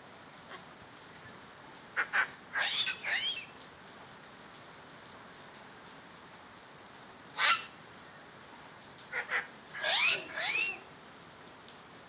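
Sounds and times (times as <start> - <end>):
steady rain hiss: 0.0 - 12.0
cockatoo squawking: 2.0 - 3.4, 7.4 - 7.7, 9.1 - 10.9.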